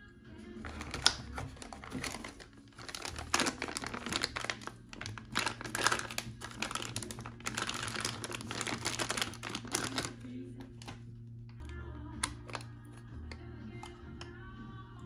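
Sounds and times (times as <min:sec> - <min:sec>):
plastic bag crinkling: 0:00.6 - 0:11.0, 0:12.2 - 0:12.7.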